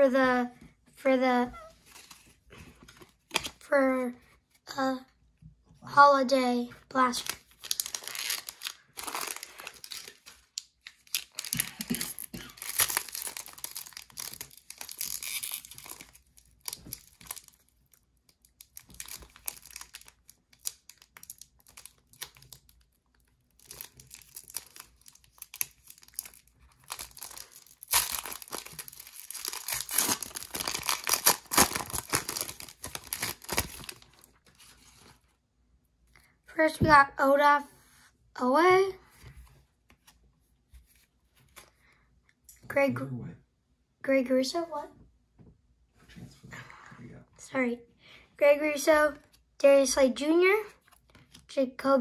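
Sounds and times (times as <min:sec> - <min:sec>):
foil wrapper crinkling and tearing: 0:07.1 - 0:35.2.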